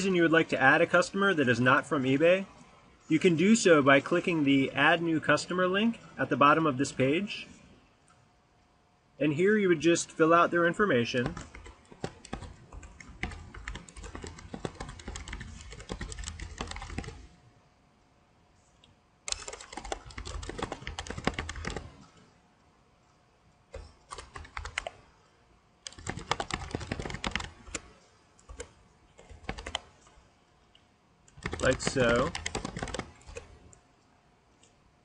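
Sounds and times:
typing on computer keyboard: 11.2 - 17.3, 19.3 - 22.1, 23.7 - 25.0, 25.8 - 30.0, 31.3 - 33.6.

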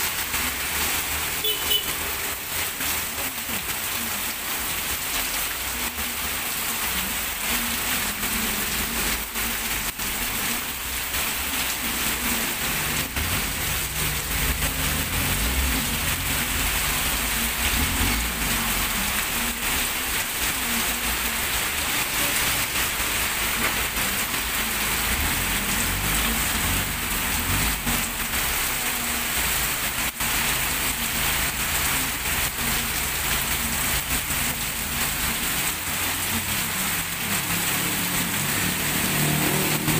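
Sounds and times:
heavy rain on street: 0.0 - 39.9
vehicles passing on wet road: 0.0 - 39.9.

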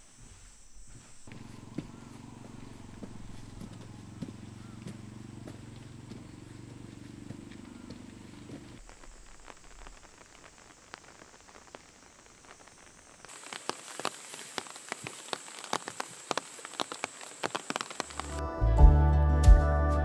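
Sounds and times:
soft steady rain hiss: 0.0 - 18.4
raindrops dripping on leaves: 5.0 - 18.4.

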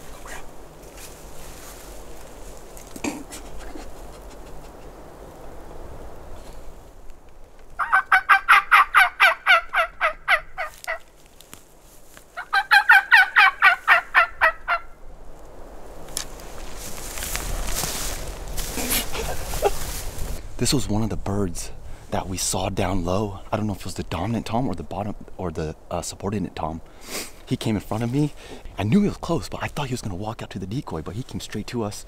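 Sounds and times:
turkey calls: 7.8 - 11.1, 12.3 - 15.0.

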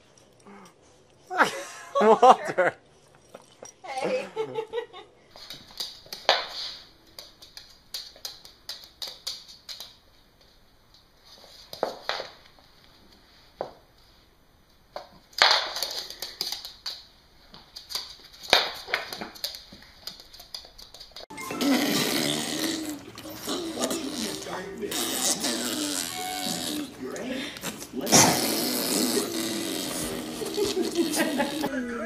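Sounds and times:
dog scuffling on wooden floor: 14.9 - 21.3, 22.0 - 31.3.

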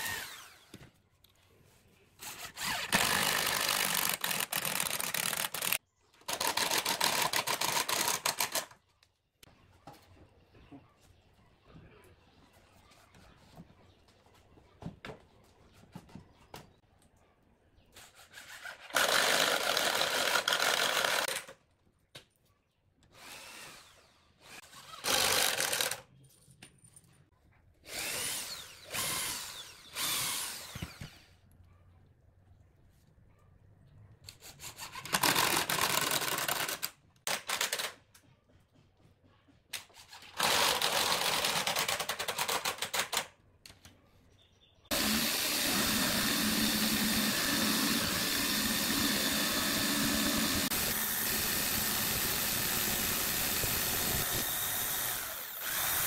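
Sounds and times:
cordless drill running in bursts: 0.0 - 0.7, 2.3 - 5.8, 19.0 - 21.4, 23.2 - 26.0, 27.9 - 31.2, 44.9 - 56.0
jigsaw cutting through wood: 0.0 - 0.8, 2.2 - 8.7, 18.2 - 21.5, 23.1 - 26.0, 27.8 - 31.4, 40.3 - 42.6, 44.9 - 56.0.

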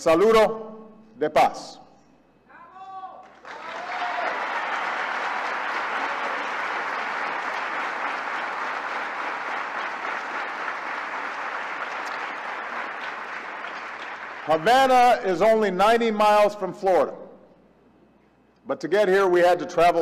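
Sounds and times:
large audience applauding: 3.2 - 14.9.

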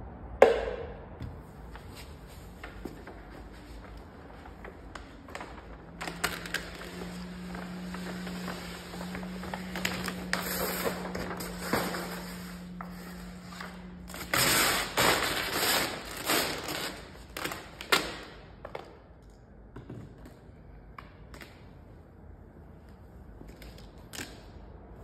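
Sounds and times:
plastic film rustling and crinkling: 1.7 - 18.2.

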